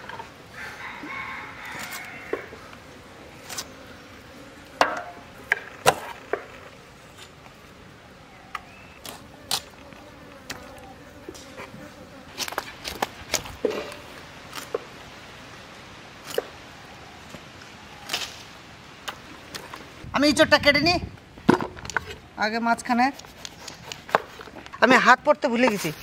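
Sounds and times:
insect buzzing: 0.0s - 15.6s.

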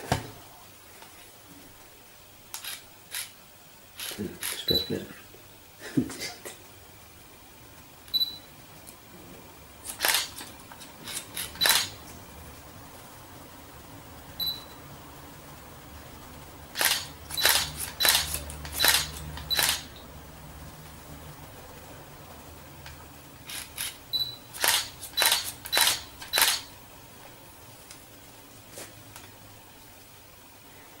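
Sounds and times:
scissors snipping hair: 24.6s - 26.7s.

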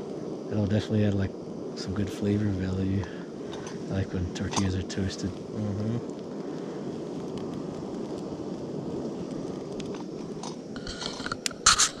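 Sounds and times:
gas stove roaring: 0.0s - 12.0s
faint clicks: 9.2s - 12.0s.

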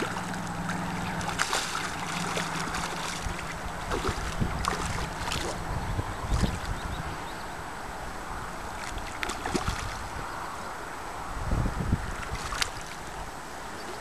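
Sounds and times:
fish splashing at the surface: 0.0s - 5.7s, 8.7s - 10.1s, 12.1s - 13.2s
moving water: 0.0s - 14.0s
wind rumble on microphone: 0.0s - 14.0s.

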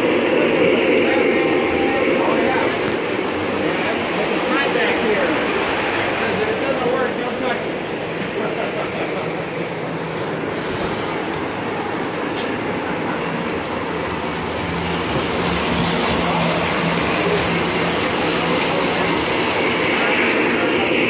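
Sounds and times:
model train rattling on metal track: 12.0s - 21.0s.

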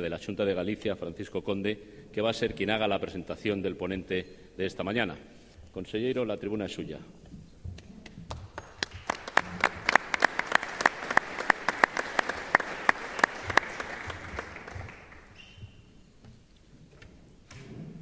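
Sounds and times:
audience applauding: 8.4s - 15.4s.

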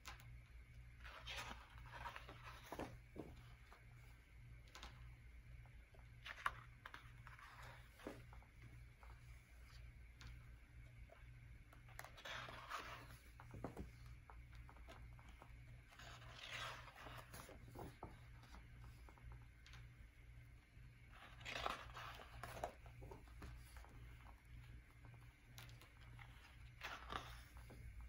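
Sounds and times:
low steady hum: 0.0s - 28.0s
paper pages rustling: 1.0s - 3.8s, 21.1s - 24.7s.

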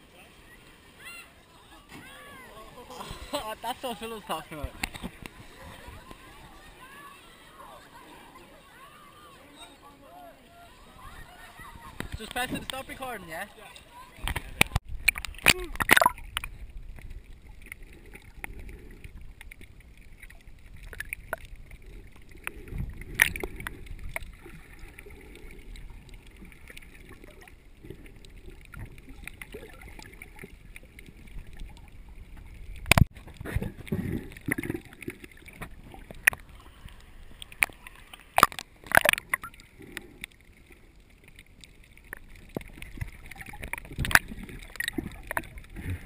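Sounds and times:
muffled water sloshing and gurgling: 0.0s - 9.2s, 13.3s - 46.0s
knocks and splashes: 14.2s - 18.3s, 28.6s - 36.7s, 37.5s - 40.1s, 42.0s - 46.0s.

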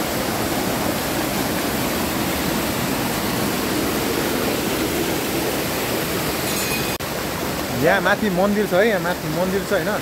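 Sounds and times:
waterfall roaring: 0.0s - 10.0s.

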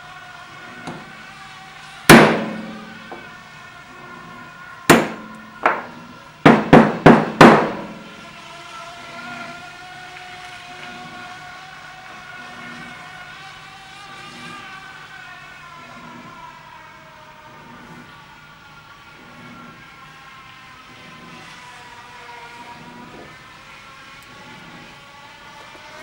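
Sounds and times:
hammer striking metal: 2.1s - 3.2s, 4.9s - 8.1s.

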